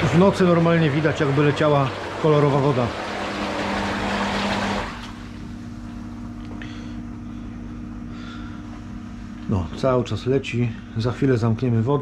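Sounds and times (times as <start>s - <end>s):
water splashing into hot tub: 0.0s - 5.3s
pump hum: 0.0s - 12.0s.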